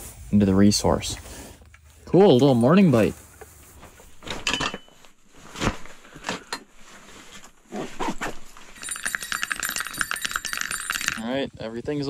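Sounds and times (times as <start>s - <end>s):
gear rustling and knocking: 8.2s - 11.2s.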